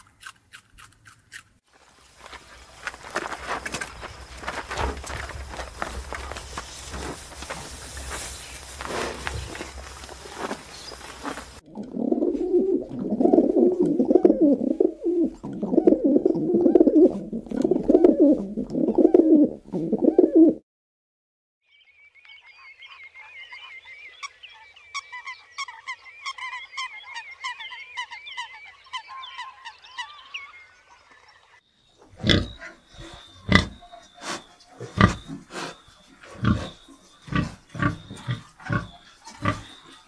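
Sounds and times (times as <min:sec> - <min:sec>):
deep animal grunts: 0:32.1 - 0:40.0
high animal chattering: 0:32.2 - 0:40.0.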